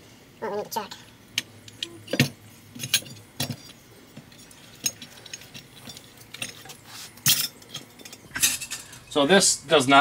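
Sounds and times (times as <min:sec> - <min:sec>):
metal clutch parts clinking: 0:01.7 - 0:09.5.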